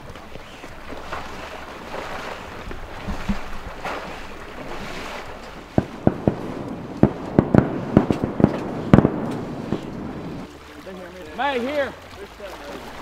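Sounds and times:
water sloshing around waders: 0.0s - 13.0s
shotgun shots: 5.8s - 10.4s.

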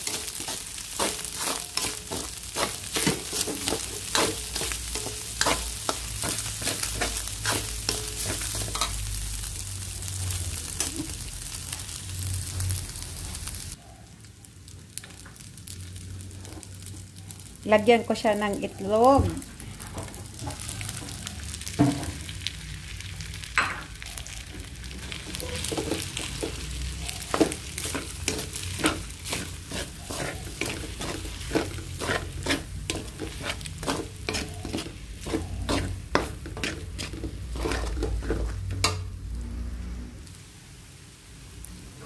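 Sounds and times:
spatula scraping a pan: 0.0s - 9.1s, 24.2s - 39.0s
rice sizzling in a metal pan: 0.0s - 42.0s.

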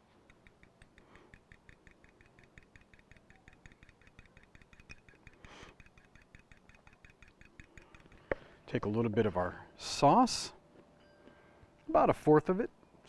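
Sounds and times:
fork clicking against bowl: 0.2s - 8.5s.

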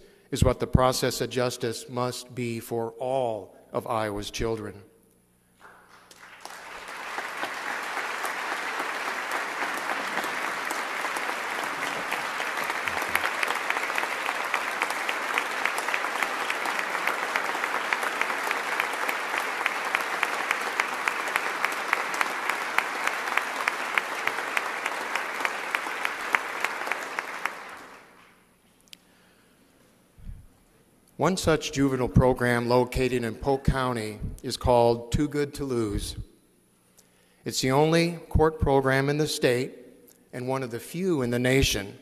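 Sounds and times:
audience applause: 5.6s - 28.3s
sharp individual claps: 5.6s - 28.4s.

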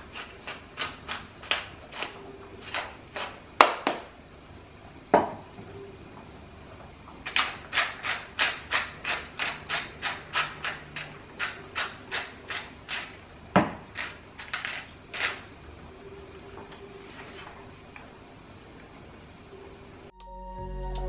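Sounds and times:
spice mill grinding: 0.0s - 3.4s, 7.2s - 13.2s, 13.8s - 15.5s.

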